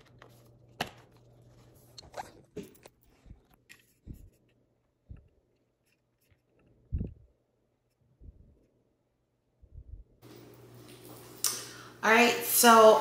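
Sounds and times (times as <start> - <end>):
soft low thumps: 6.9 - 7.3.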